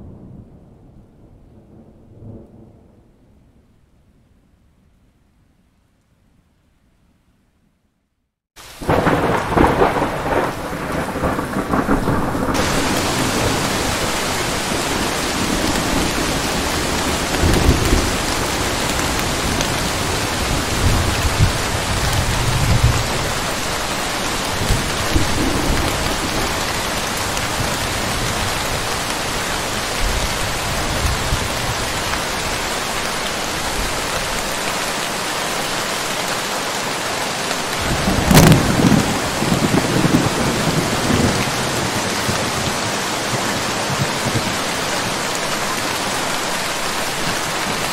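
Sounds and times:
thunder rumbling: 0:00.0 - 0:03.8, 0:08.8 - 0:32.6, 0:37.6 - 0:47.9
heavy rain hissing: 0:08.6 - 0:47.9
loud thunderclap: 0:08.8 - 0:23.4, 0:24.6 - 0:28.8, 0:37.8 - 0:44.6.

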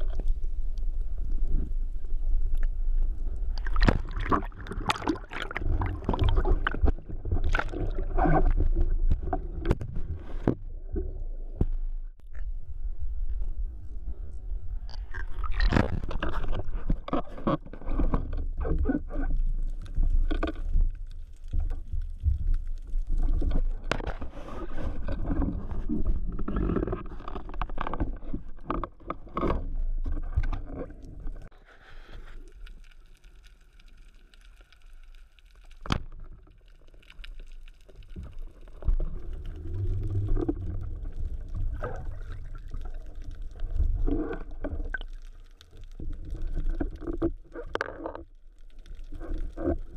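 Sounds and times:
water sloshing and gurgling: 0:00.0 - 0:34.8, 0:35.4 - 0:49.9
knocks and scrapes of handling: 0:15.5 - 0:20.8, 0:23.1 - 0:32.6
low rumble: 0:38.4 - 0:45.0.

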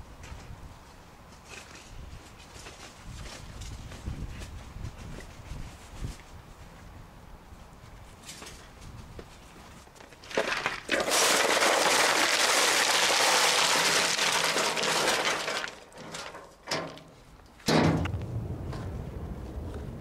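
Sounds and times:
stones pouring from wheelbarrow: 0:10.2 - 0:17.1.

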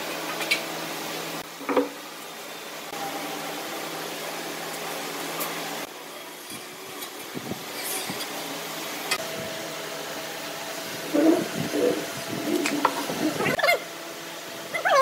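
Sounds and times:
steady mechanical hum: 0:00.0 - 0:15.0.

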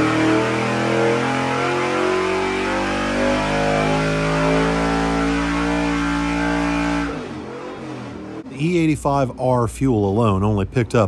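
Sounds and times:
engine at full throttle: 0:00.0 - 0:09.1.

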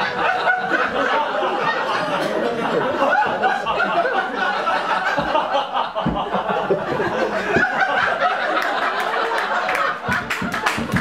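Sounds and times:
audience laughing: 0:00.0 - 0:11.0
low thumps: 0:05.0 - 0:08.2.

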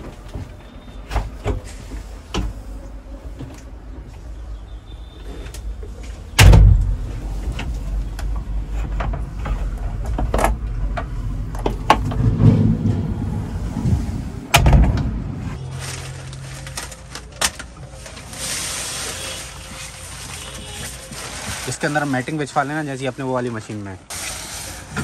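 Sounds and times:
low rumble: 0:06.4 - 0:16.6.

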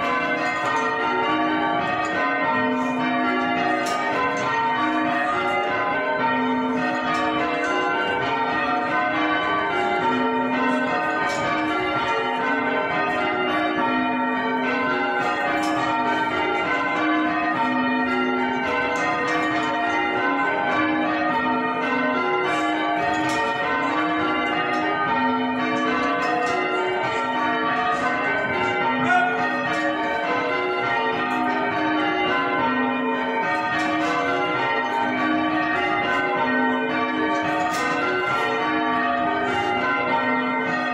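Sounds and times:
church bells ringing: 0:00.0 - 0:40.9.

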